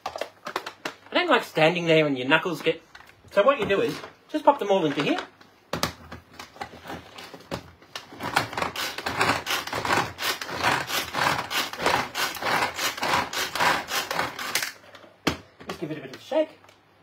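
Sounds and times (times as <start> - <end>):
pull-cord chopper grating cheese: 8.1 - 14.6.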